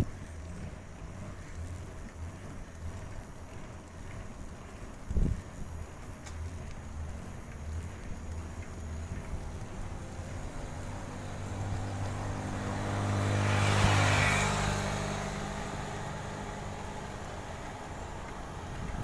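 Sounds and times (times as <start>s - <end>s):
motorcycle engine passing: 6.4s - 19.0s.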